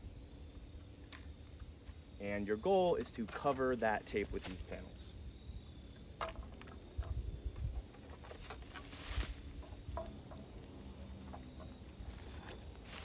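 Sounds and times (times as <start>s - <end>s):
footsteps in dry leaves: 3.8s - 5.1s, 8.2s - 13.0s
rustling and crinkling of stiff panels: 6.1s - 13.0s.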